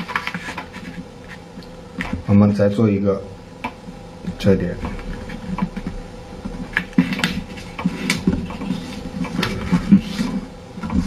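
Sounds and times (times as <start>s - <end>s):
paper rustling and crinkling: 0.0s - 1.4s, 4.9s - 11.0s.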